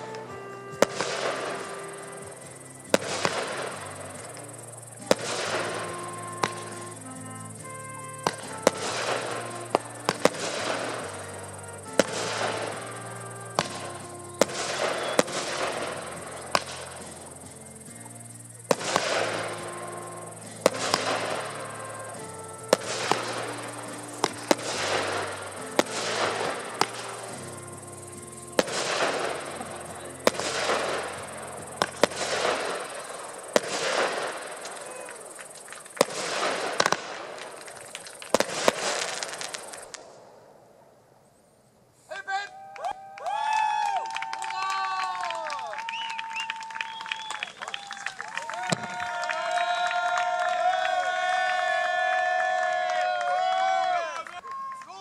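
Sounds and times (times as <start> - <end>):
background music with low notes: 0.0 - 35.2
firework shells bursting: 0.0 - 40.4, 45.8 - 49.2
crackling hiss: 0.0 - 54.9.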